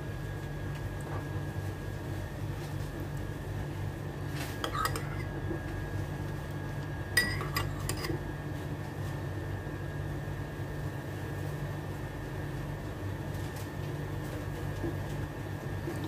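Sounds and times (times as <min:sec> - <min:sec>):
steady low hum: 0:00.0 - 0:16.0
metal spoon clinking on ceramic bowl: 0:04.6 - 0:05.3, 0:07.2 - 0:08.1.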